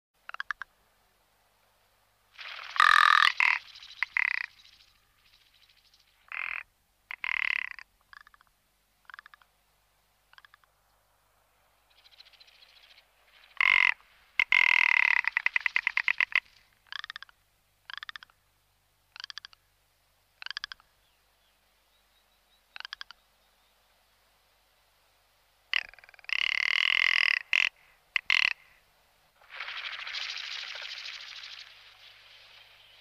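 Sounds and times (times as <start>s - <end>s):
bird croaking rattles: 0.3s - 0.7s, 2.4s - 9.4s, 10.3s - 10.7s, 13.4s - 18.3s, 19.1s - 19.6s, 20.4s - 20.8s, 25.7s - 28.7s, 29.4s - 32.8s.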